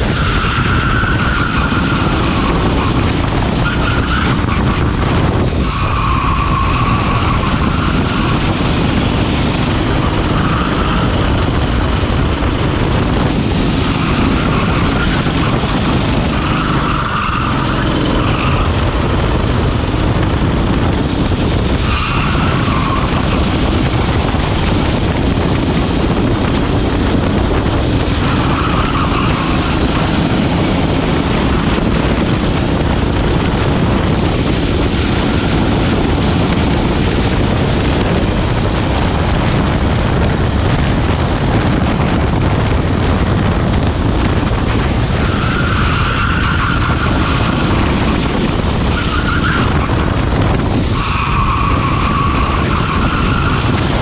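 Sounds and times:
tyre squeals: 0.0 - 4.9, 5.6 - 8.8, 9.8 - 11.4, 13.7 - 19.1, 21.7 - 24.1, 28.1 - 31.6, 45.2 - 48.2, 48.9 - 50.0, 50.8 - 53.9
kart engine at full throttle: 0.0 - 54.0
rush of noise: 0.0 - 54.0.

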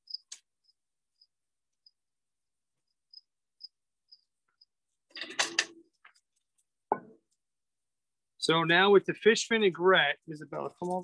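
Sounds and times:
crickets chirping: 0.0 - 2.0, 2.8 - 4.8.

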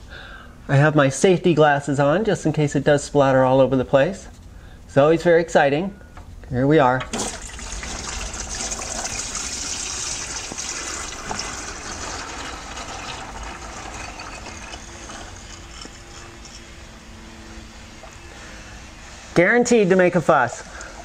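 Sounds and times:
oil splashing into drain pan: 7.1 - 15.8.

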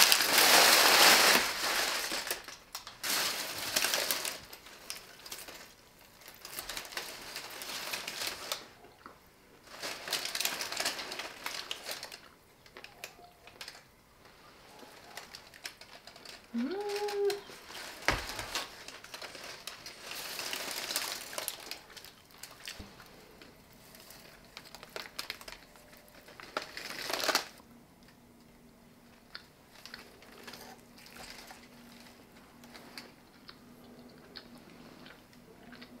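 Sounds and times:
baking paper and foil crinkling: 0.0 - 9.0, 9.6 - 27.6, 29.2 - 33.6.

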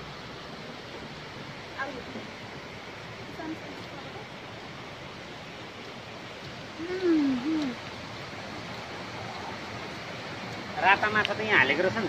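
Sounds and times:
running water rushing: 0.0 - 12.0
voice-like call: 6.8 - 7.8.

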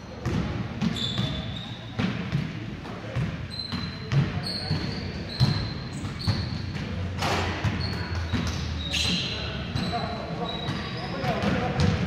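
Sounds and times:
sneakers squeaking on court: 0.0 - 12.0
basketball bouncing on hardwood floor: 11.4 - 12.0.

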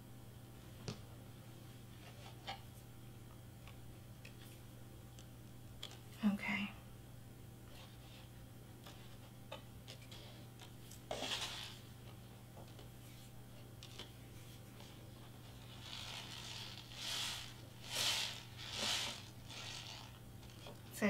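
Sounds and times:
cardstock box scrape: 11.1 - 11.8, 15.7 - 20.6.

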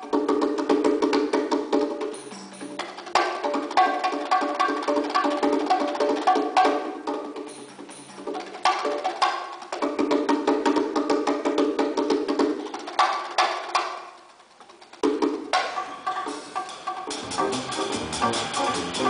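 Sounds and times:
hand drums playing: 0.0 - 19.0.

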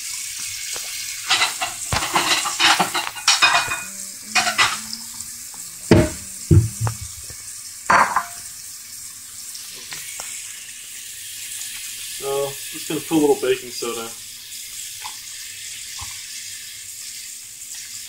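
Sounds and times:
faucet water running into sink: 0.0 - 18.0
clattering: 1.3 - 4.9, 5.9 - 7.2
knocks against sink: 5.9 - 7.2.

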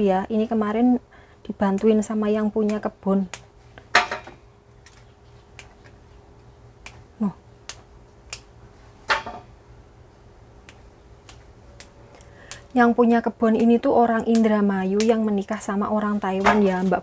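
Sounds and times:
fern shoots snapping: 13.6 - 15.3.

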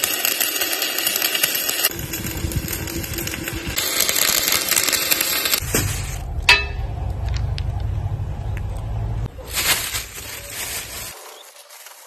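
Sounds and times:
welding arc crackling: 0.0 - 7.7
steady low hum: 5.6 - 9.4.

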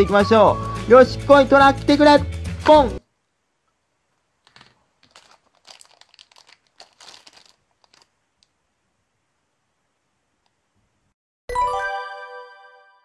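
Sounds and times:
plastic bag crinkling: 4.4 - 8.6.

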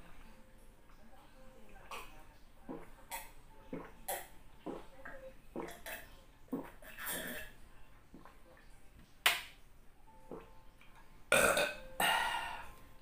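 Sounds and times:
man swallowing water: 11.3 - 12.1
loud burps: 11.3 - 12.5.

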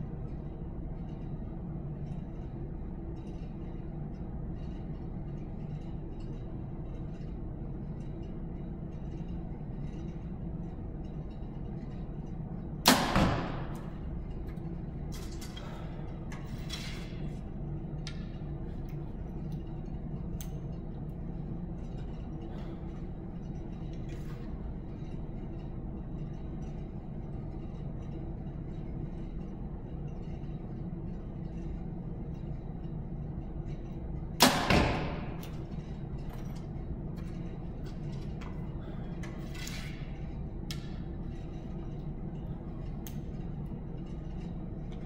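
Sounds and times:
steady low hum: 0.0 - 45.0
compound bow shot: 12.8 - 13.8, 34.4 - 35.4.

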